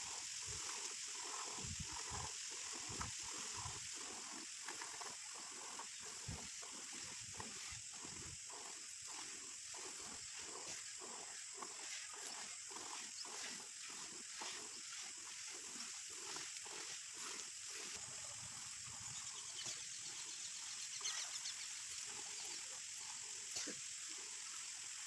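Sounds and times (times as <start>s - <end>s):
milk squirting into a bucket: 0.1s - 18.0s.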